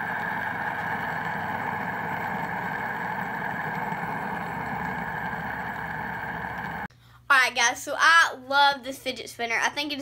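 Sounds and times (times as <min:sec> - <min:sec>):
fidget spinner whirring: 0:00.0 - 0:06.9.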